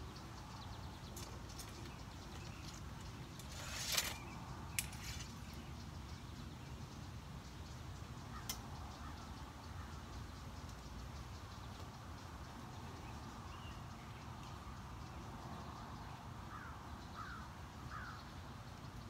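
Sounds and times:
arrow sliding out of quiver: 3.4s - 5.3s.

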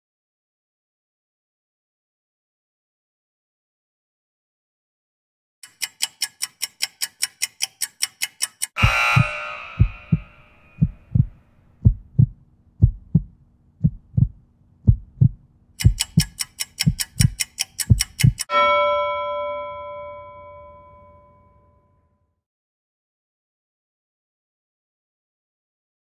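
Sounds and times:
fast countdown ticks: 5.6s - 18.5s
loud ringing hit: 8.8s - 10.8s
heartbeat thumps: 8.8s - 18.5s
ringing bell tone: 18.5s - 22.3s.

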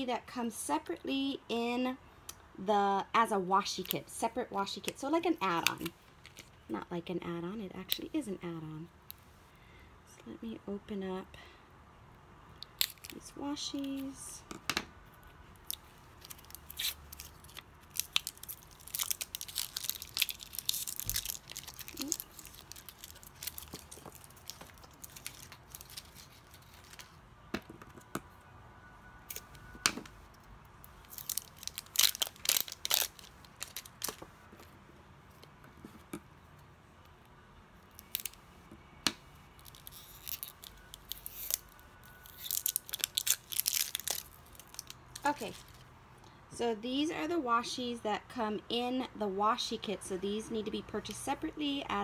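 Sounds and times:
packaging tearing and crinkling: 15.6s - 27.2s, 31.0s - 34.2s, 37.9s - 38.4s, 39.6s - 45.8s.

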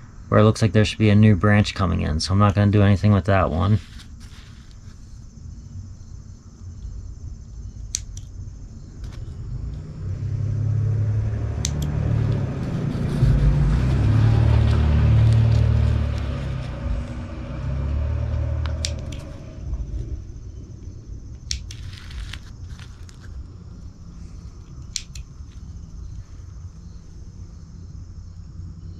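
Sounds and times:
deep rumble: 0.0s - 28.9s
trimming snips clicking shut: 11.6s - 12.0s, 24.8s - 25.3s.

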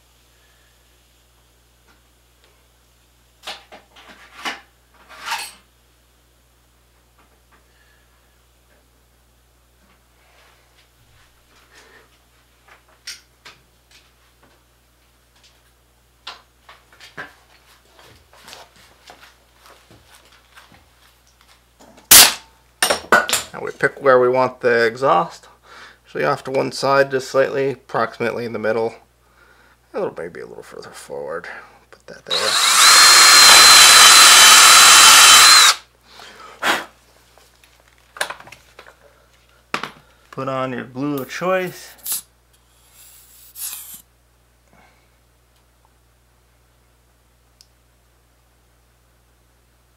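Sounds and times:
power drill boring into wood: 32.3s - 35.8s.

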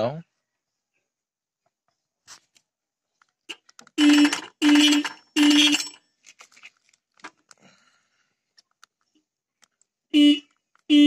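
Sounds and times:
motorcycle horn blasts: 4.0s - 6.0s, 10.1s - 11.0s.

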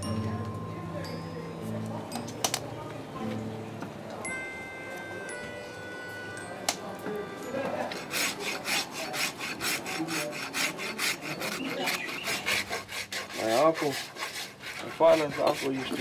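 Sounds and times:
hoof rasp rasping: 7.7s - 16.0s.

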